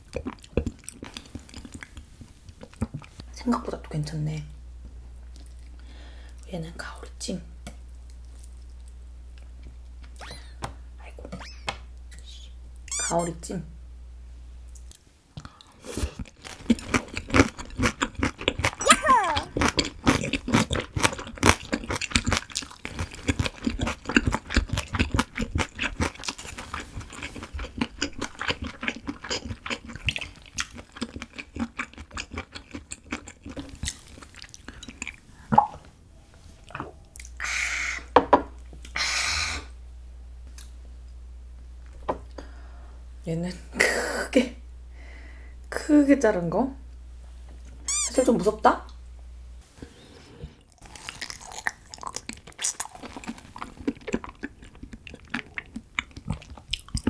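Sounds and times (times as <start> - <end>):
close chewing with mouth clicks: 0.0 - 3.3, 14.7 - 35.6, 50.7 - 57.0.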